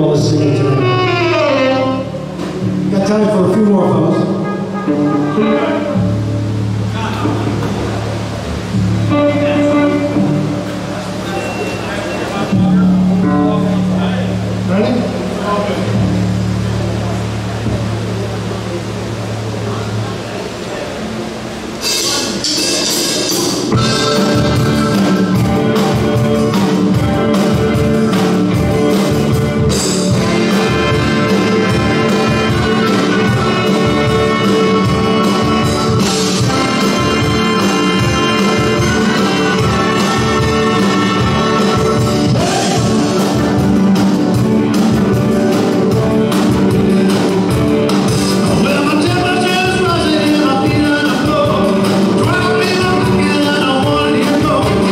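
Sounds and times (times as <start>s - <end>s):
steady drum beat: 0.0s - 11.2s, 21.5s - 54.9s
live rock and roll band: 0.0s - 54.9s.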